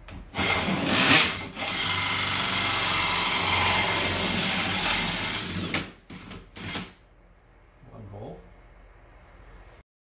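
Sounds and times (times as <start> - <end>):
cordless drill with hole saw: 0.3 - 6.9.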